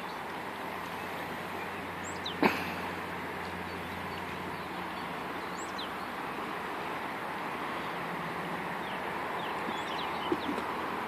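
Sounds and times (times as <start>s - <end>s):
fast-flowing river rushing: 0.0s - 11.0s
bird chirping: 1.6s - 2.4s, 3.7s - 6.1s, 8.8s - 10.7s.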